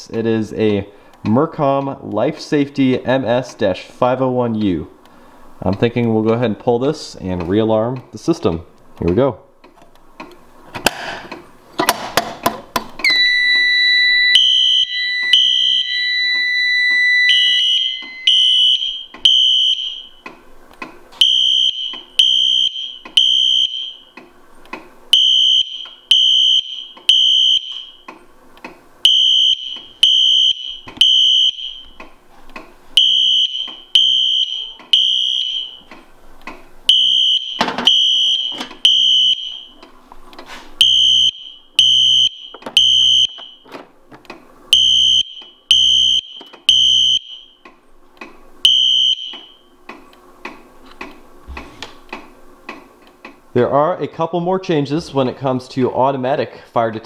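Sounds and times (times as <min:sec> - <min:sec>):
fire alarm high beeps: 0:13.0 - 0:20.2, 0:21.2 - 0:24.1, 0:25.1 - 0:28.1, 0:29.0 - 0:32.0, 0:33.0 - 0:35.9, 0:36.9 - 0:39.8, 0:40.8 - 0:43.7, 0:44.7 - 0:47.6, 0:48.6 - 0:49.7.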